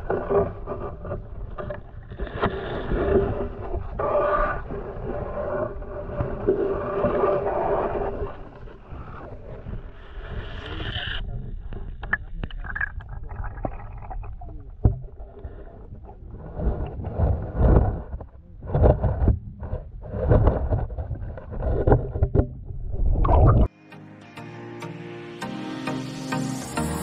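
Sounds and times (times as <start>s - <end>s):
muffled underwater rumbling: 0.0s - 23.7s
music: 23.7s - 27.0s.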